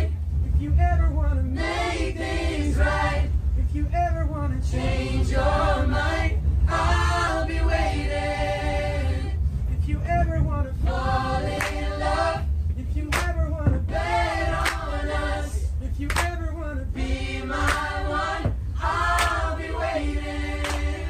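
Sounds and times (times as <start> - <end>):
low rumble: 0.0 - 21.0
group singing unaccompanied: 1.5 - 3.3, 4.6 - 9.4, 10.8 - 12.5, 13.2 - 21.0
sharp hand clap: 13.1 - 13.3, 16.1 - 16.3, 17.7 - 17.9, 19.1 - 19.4, 20.6 - 20.9.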